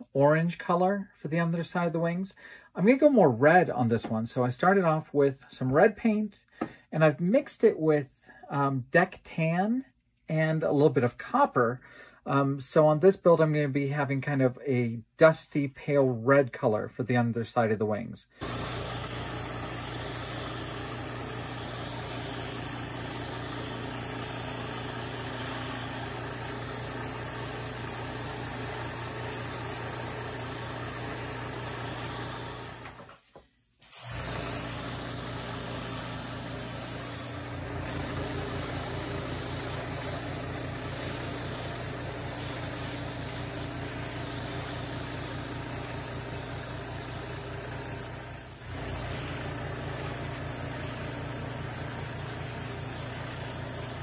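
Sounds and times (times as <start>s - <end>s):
compressor pulsing hum: 18.4s - 33.0s, 34.0s - 54.0s
airbrush spraying hiss: 18.4s - 54.0s.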